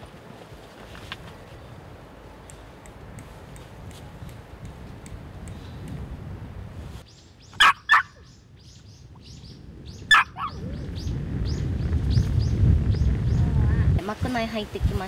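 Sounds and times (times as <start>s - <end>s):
birds chirping: 4.9s - 6.1s, 7.0s - 13.7s
loud sharp bird calls: 7.1s - 13.4s.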